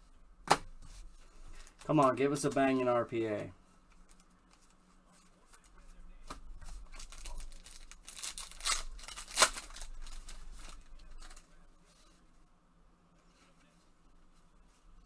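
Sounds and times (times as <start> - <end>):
foil wrapper crinkling: 6.8 - 11.5
foil pack ripping: 6.9 - 11.3.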